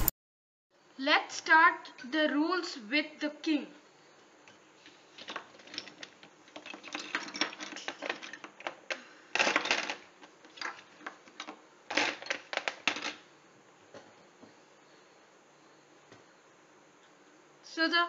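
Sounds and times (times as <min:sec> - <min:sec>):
plastic chess pieces clattering: 0:05.2 - 0:13.2.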